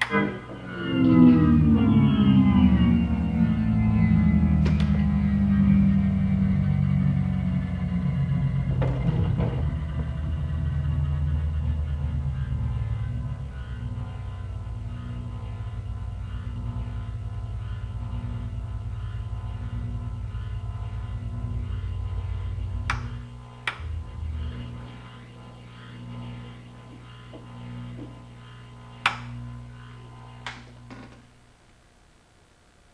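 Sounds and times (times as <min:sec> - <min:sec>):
organ notes sinking in pitch: 0:00.0 - 0:17.9.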